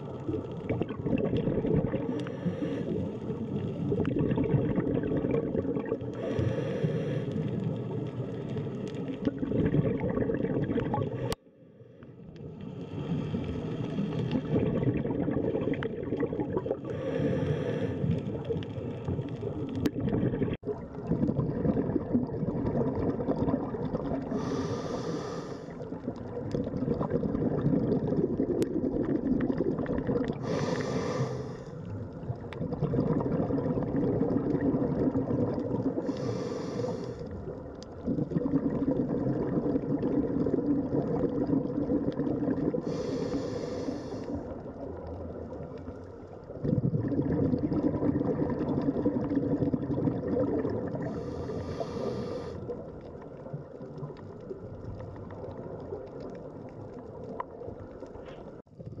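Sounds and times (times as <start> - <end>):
exhaled bubbles gurgling: 0.0 - 11.4, 12.2 - 59.0
regulator breathing hiss: 6.2 - 7.5, 24.4 - 25.8, 30.4 - 31.8, 36.0 - 37.3, 42.8 - 44.5, 51.1 - 52.6.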